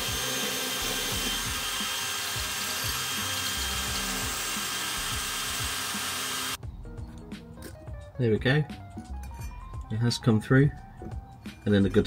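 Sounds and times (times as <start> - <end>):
electric drill boring metal: 0.0 - 6.6.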